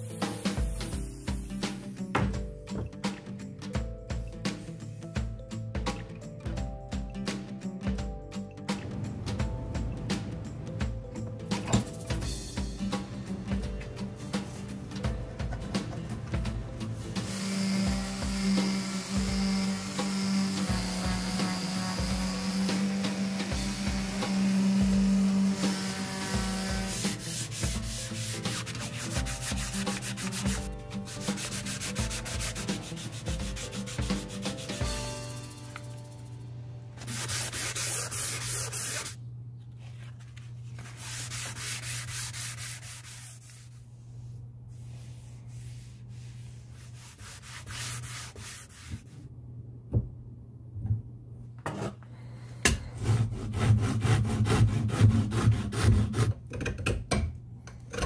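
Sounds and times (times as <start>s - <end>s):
wood rasp strokes: 17.2s - 35.9s, 37.0s - 39.2s, 45.6s - 49.1s, 52.9s - 56.4s
sandpaper rubbing by hand: 24.3s - 36.2s, 37.0s - 39.2s, 40.8s - 43.8s, 44.7s - 49.2s.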